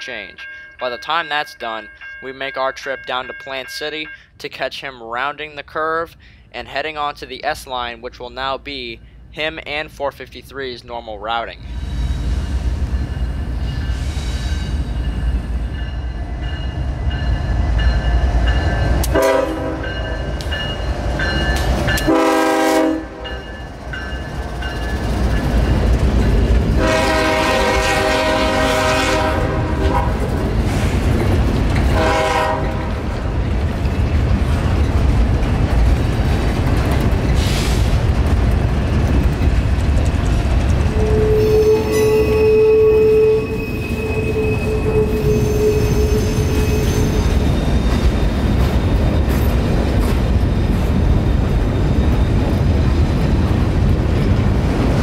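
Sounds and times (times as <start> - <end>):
crossing bell ringing: 0.0 - 4.4, 12.3 - 26.9
train air horn blasts: 19.0 - 20.1, 22.0 - 23.4, 26.8 - 30.3, 31.9 - 33.0, 40.9 - 47.3.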